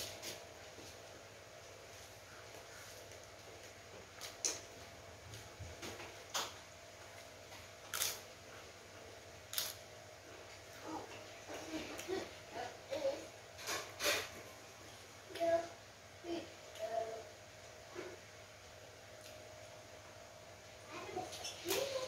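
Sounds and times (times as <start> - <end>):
low room hum: 0.0 - 22.0
crisp wafers crunching: 7.9 - 8.2, 9.5 - 9.8.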